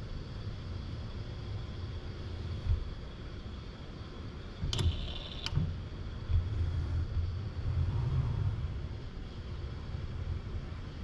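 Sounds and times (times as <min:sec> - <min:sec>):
sharp mechanical clicks: 0:04.6 - 0:05.7
robot arm low rumble: 0:06.4 - 0:09.2.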